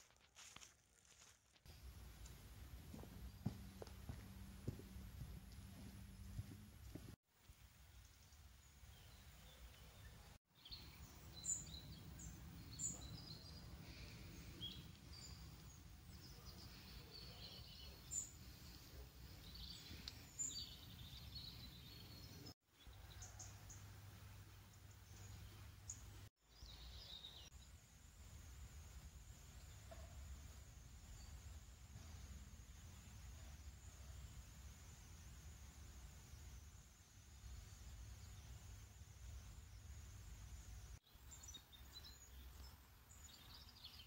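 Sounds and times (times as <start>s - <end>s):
songbirds chirping: 0.4s - 44.0s
low steady rumble: 1.7s - 7.1s.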